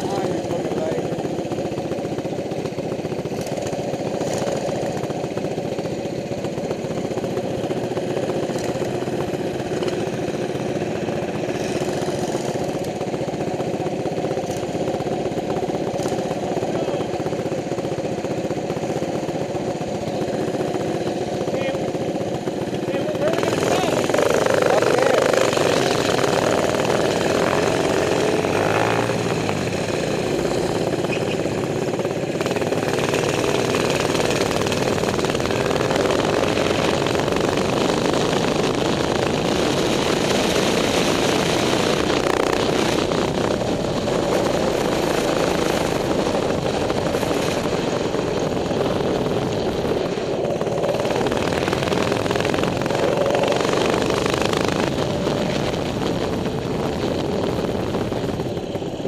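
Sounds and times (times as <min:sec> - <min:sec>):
minibike engine running: 0:00.0 - 0:59.0
wind noise on microphone: 0:34.0 - 0:59.0.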